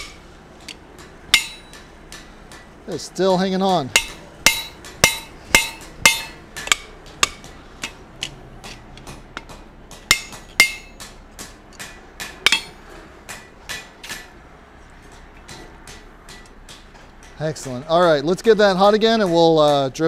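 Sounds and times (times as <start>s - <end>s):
hammer striking steel punch: 0.0s - 2.8s, 3.7s - 14.3s.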